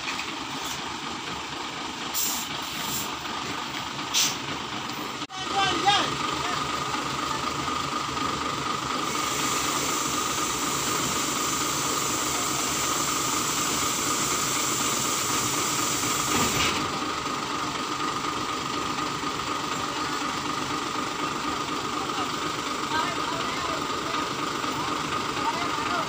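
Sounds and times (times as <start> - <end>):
diesel truck engine running: 0.0 - 26.0
hydraulic hiss: 2.1 - 3.2, 4.1 - 4.4, 9.0 - 16.9.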